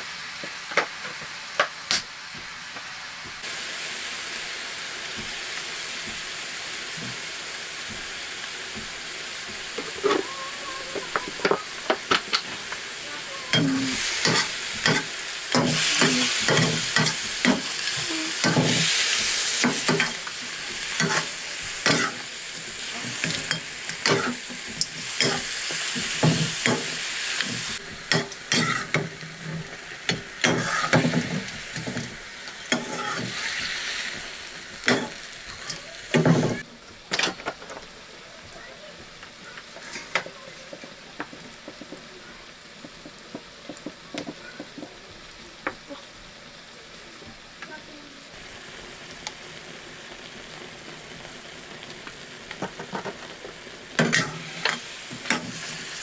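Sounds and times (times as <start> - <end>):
food sizzling in oil: 0.0 - 56.0
spoon scraping pan: 13.4 - 34.1.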